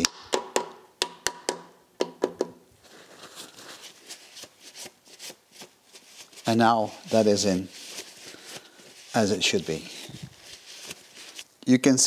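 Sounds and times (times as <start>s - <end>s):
rubber mallet tapping: 0.0s - 2.6s
cloth rubbing on metal: 2.8s - 11.5s.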